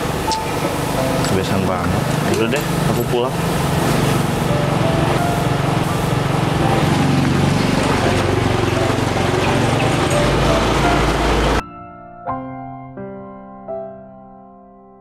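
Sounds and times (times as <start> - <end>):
scooter engine idling: 0.0 - 11.6
soft piano music: 0.0 - 15.0.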